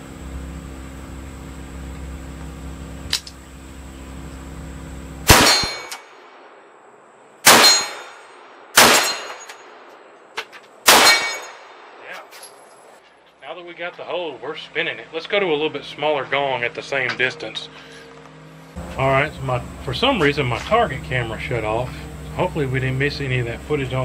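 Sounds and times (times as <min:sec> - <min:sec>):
steady low hum: 0:00.0 - 0:24.0
pistol shots: 0:05.2 - 0:06.4, 0:07.4 - 0:09.9, 0:10.8 - 0:12.0.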